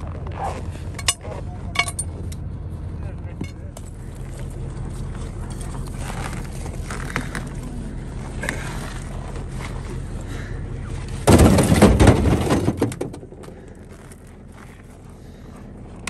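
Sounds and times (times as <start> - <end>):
vehicle engine idling: 0.0 - 16.0
ice clattering into metal bed: 11.3 - 13.1.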